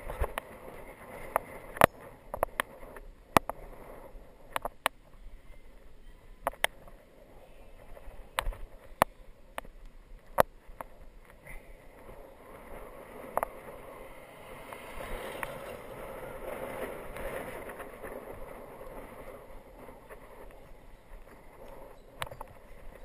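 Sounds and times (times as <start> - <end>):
wind rushing over microphone: 0.0 - 23.0
tyre noise on tarmac: 7.8 - 23.0.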